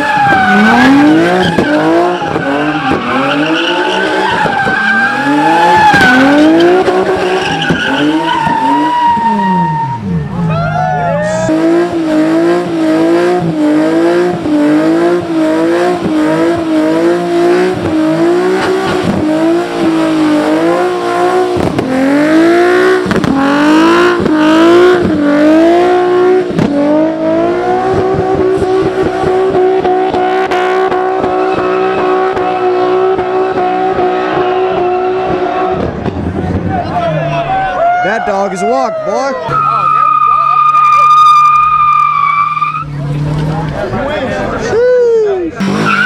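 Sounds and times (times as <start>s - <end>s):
tyres spinning on pavement: 0.0s - 10.2s
sports car engine revving: 0.0s - 10.4s, 11.3s - 37.4s, 45.6s - 46.0s.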